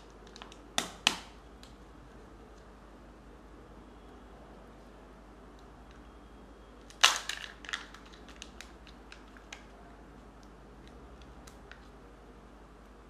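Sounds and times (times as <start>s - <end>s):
plastic clicks and crackles: 0.0s - 1.8s, 6.8s - 9.8s
plastic egg cracking open: 6.8s - 9.7s.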